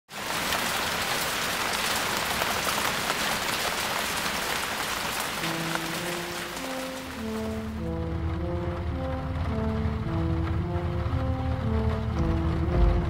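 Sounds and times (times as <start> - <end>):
rain pattering: 0.1 - 13.0
slow held music notes: 5.4 - 13.0.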